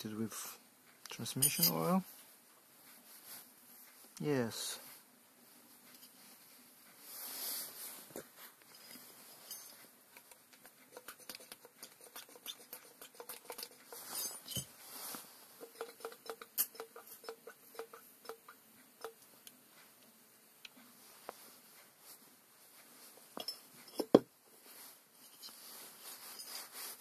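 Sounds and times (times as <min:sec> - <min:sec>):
metallic clicks and taps: 0:15.6 - 0:19.6.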